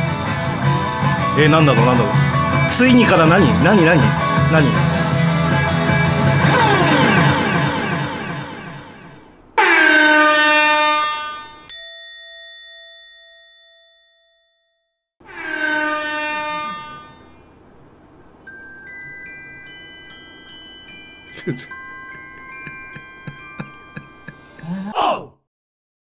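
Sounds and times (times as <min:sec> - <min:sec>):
air horn blast: 0:06.4 - 0:11.6, 0:15.2 - 0:17.4
bright bell ding: 0:11.6 - 0:14.9.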